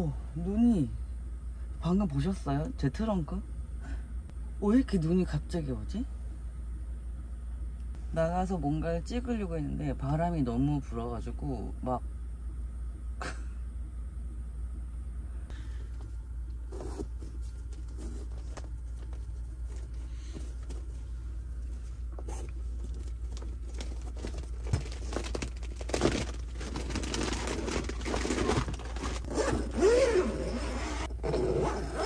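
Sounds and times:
steady low rumble: 0:11.5 - 0:31.7.

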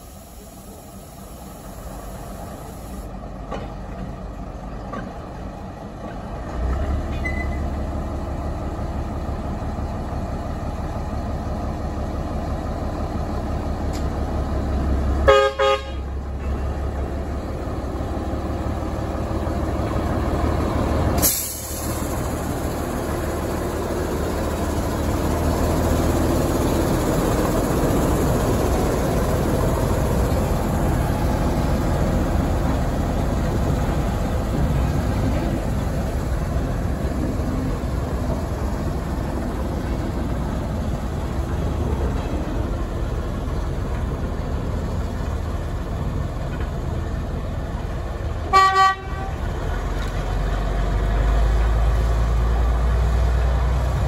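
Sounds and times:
diesel locomotive engine rumble: 0:00.0 - 0:54.0
locomotive horn toot: 0:15.2 - 0:16.1, 0:48.5 - 0:49.5.

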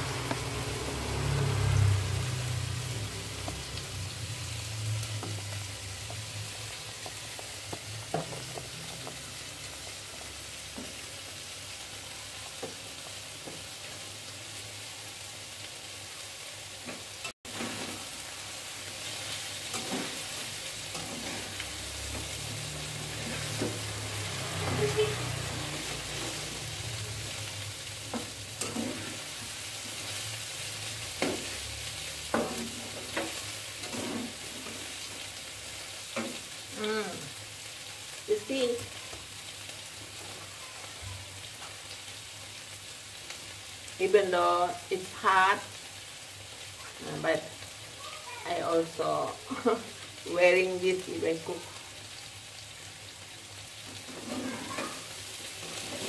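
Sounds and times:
food sizzling in oil: 0:00.0 - 0:56.0
metal spatula scraping wok: 0:17.5 - 0:18.4, 0:19.0 - 0:27.4, 0:28.0 - 0:35.4, 0:53.8 - 0:56.0.

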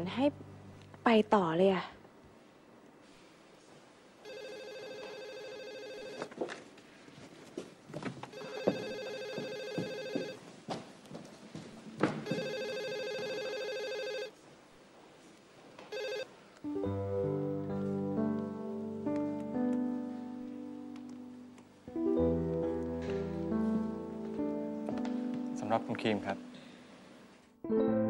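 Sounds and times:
telephone ringing: 0:04.2 - 0:06.3, 0:08.3 - 0:10.4, 0:12.2 - 0:14.4, 0:15.9 - 0:16.4
soft guitar music: 0:16.6 - 0:26.9, 0:27.6 - 0:28.0.

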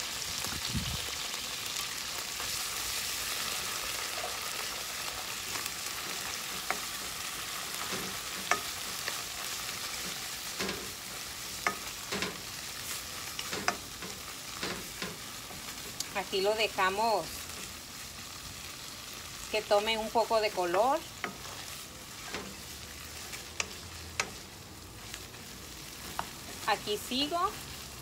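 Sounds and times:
food sizzling in frying pan: 0:00.0 - 0:28.0
wooden spoon clacking on pan: 0:07.8 - 0:09.2, 0:13.3 - 0:15.2, 0:23.3 - 0:24.4.

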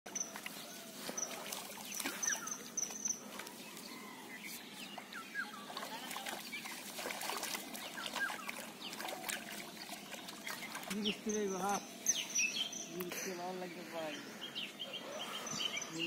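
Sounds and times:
water splashing and dripping: 0:00.1 - 0:03.6, 0:05.0 - 0:11.8
birds chirping: 0:00.1 - 0:16.0.

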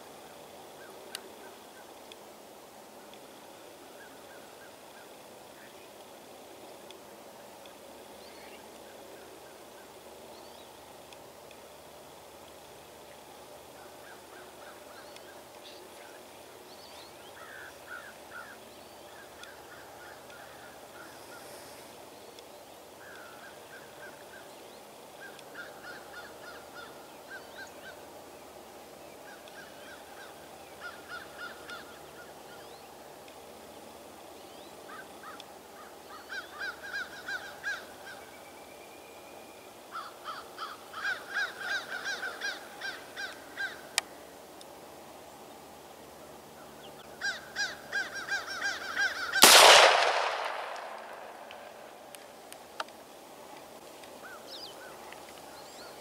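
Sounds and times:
large birds calling: 0:13.6 - 0:28.1, 0:29.2 - 0:32.9, 0:34.4 - 0:38.5, 0:39.9 - 0:44.2, 0:46.5 - 0:52.0.

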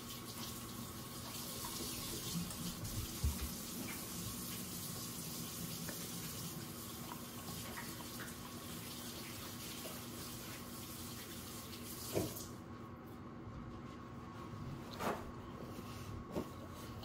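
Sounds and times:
tap running into a sink: 0:12.0 - 0:12.5.

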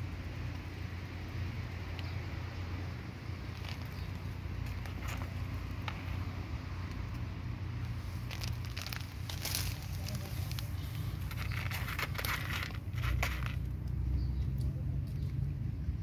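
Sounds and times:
steady low rumble: 0:00.0 - 0:16.0
cat crunching dry kibble: 0:03.3 - 0:06.3, 0:07.9 - 0:14.0.

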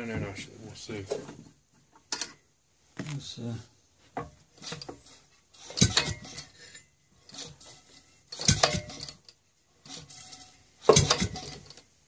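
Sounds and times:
engine cranked by hand clanking: 0:04.6 - 0:06.6, 0:07.2 - 0:11.9.

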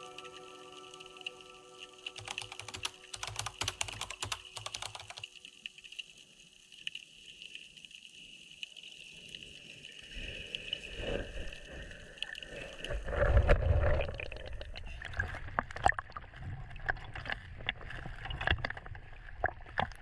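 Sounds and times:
keyboard key clicks: 0:02.2 - 0:05.3.

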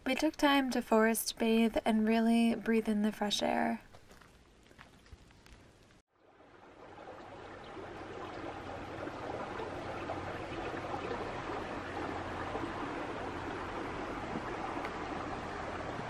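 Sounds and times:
creek water hissing in rain: 0:06.2 - 0:16.0.

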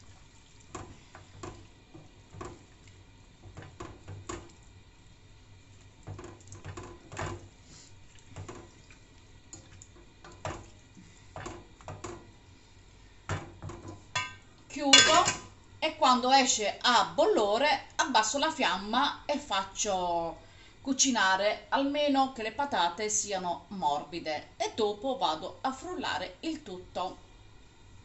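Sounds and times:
wooden spoon knocking on pot: 0:00.7 - 0:02.7, 0:03.4 - 0:04.6, 0:13.2 - 0:15.5
wet squishing of vegetables: 0:07.5 - 0:11.4.

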